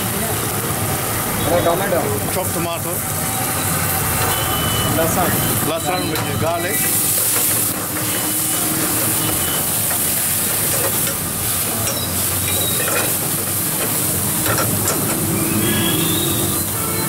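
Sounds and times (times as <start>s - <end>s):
vegetables sizzling in hot oil: 0.0s - 17.0s
metal ladle stirring in wok: 6.7s - 16.2s.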